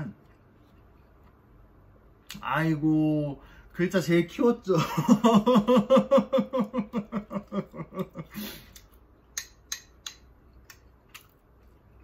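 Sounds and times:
person laughing: 4.7 - 8.8.

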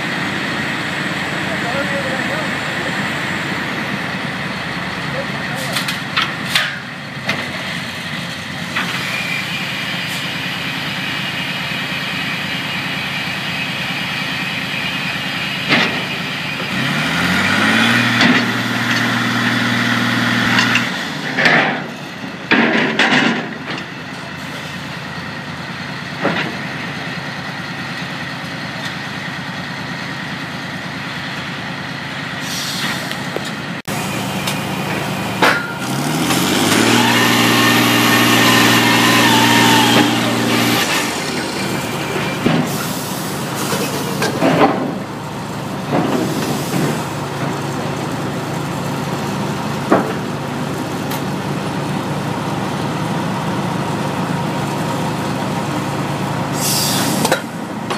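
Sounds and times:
machine engine running: 33.3 - 46.4.

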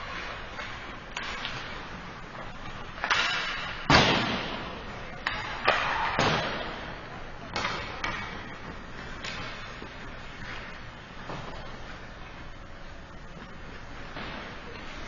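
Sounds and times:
puck and sticks knocking boards: 3.0 - 4.6, 5.2 - 6.8, 7.5 - 10.6.

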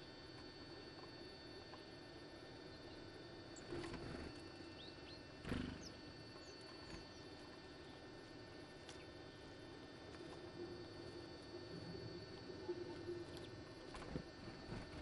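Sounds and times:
birds fluttering and landing: 13.8 - 15.0.

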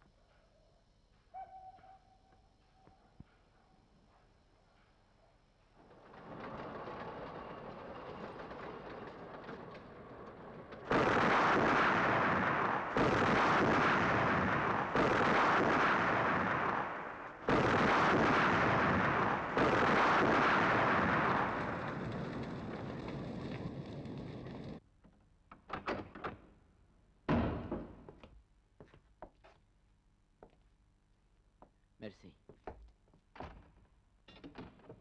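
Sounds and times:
heavy explosions: 5.8 - 24.8.

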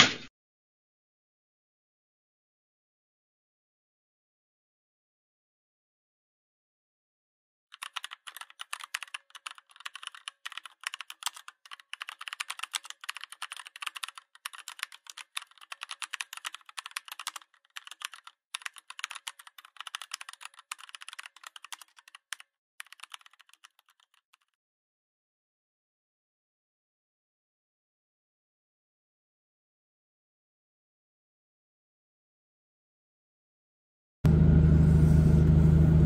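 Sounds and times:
fast typing on a keyboard: 7.7 - 24.5.

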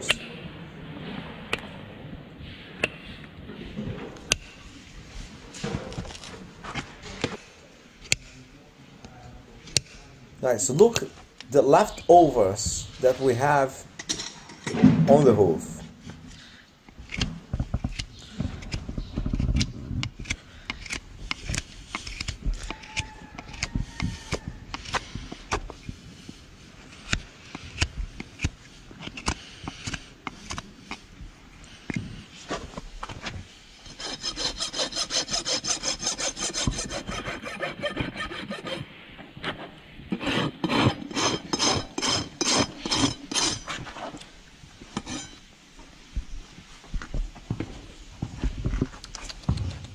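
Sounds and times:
hoof knife scraping hoof: 17.0 - 32.8, 33.7 - 44.2, 44.9 - 45.4
hoof rasp filing: 20.2 - 26.0, 33.8 - 38.9, 39.5 - 43.8.

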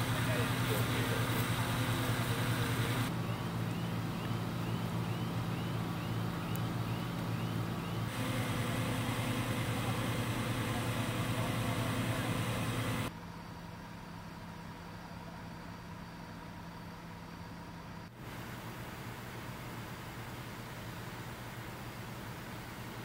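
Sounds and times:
idling engines drone: 0.0 - 23.0
faint high rising chirp: 3.0 - 9.6.

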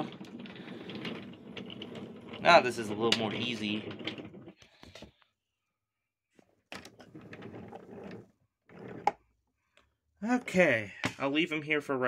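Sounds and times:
toy trains clattering on wooden track: 0.0 - 4.6.

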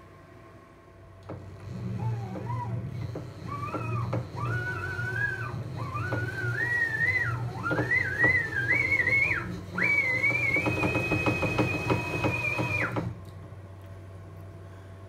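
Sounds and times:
stepper motor whine: 1.3 - 13.2.

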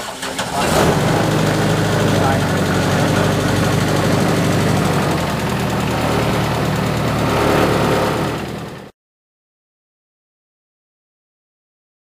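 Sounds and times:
boat engine running: 0.6 - 8.9.

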